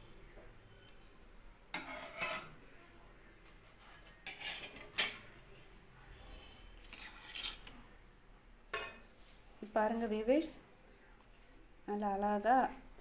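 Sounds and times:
spatula scraping metal pan: 0:01.7 - 0:02.6, 0:03.8 - 0:05.2, 0:06.8 - 0:07.7
spatula clinking on plate: 0:08.7 - 0:09.1.

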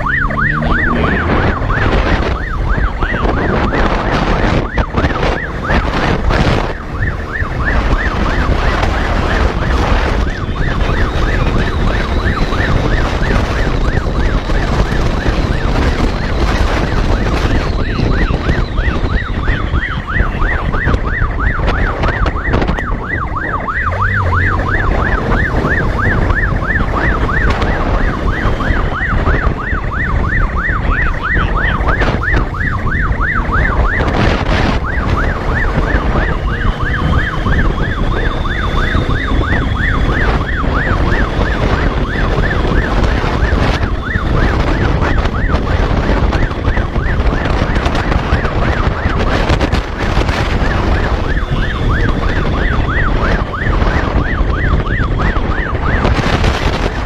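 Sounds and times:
road and wind noise rumble: 0:00.0 - 0:57.0
warbling motorcycle siren: 0:00.0 - 0:57.0.

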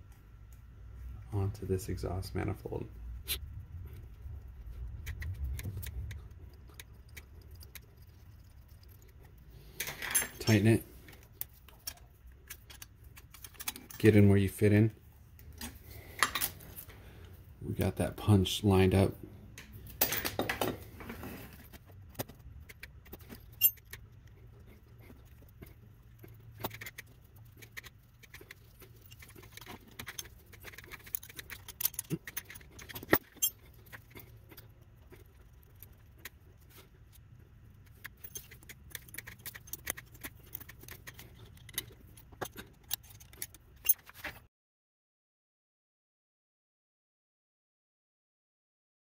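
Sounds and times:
small metal parts clinking: 0:06.9 - 0:14.2, 0:22.2 - 0:44.4.

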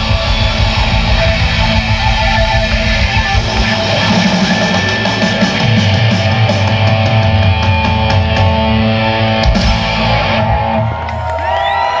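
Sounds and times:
drum strokes: 0:00.0 - 0:08.8
guitar pitch sweeps: 0:00.0 - 0:10.8
heavy rock band playing: 0:00.0 - 0:12.0.

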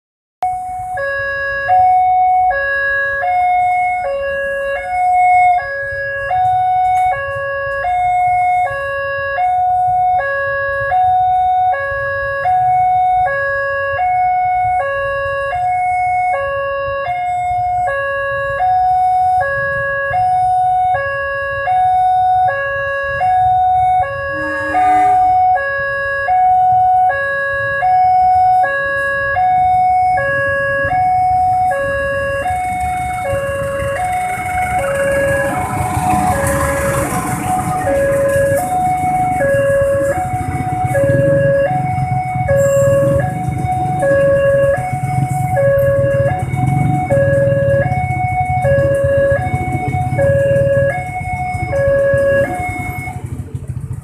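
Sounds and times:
two-tone level crossing alarm: 0:00.4 - 0:53.5
passing train rumble: 0:21.5 - 0:25.6, 0:28.4 - 0:54.0.

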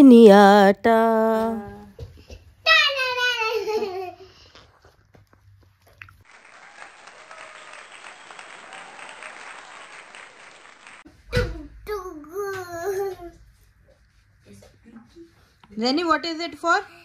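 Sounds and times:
people clapping: 0:06.2 - 0:11.1.

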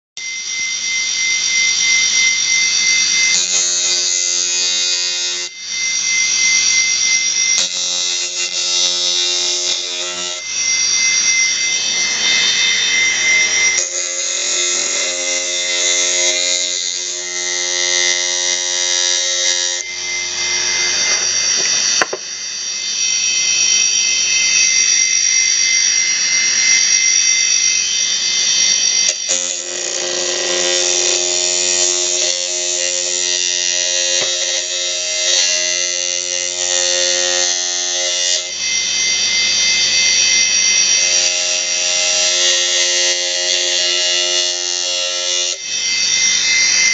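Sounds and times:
drive motor whine: 0:00.2 - 0:37.4.

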